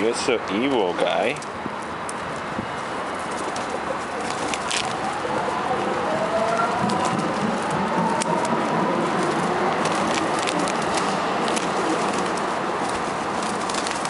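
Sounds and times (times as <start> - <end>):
steady rushing noise: 0.0 - 14.0
pigeons cooing: 3.2 - 14.0.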